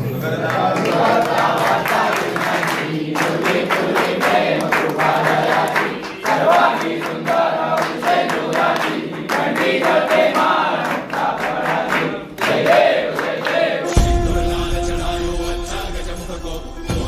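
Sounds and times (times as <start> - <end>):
group singing a devotional chant: 0.0 - 17.0.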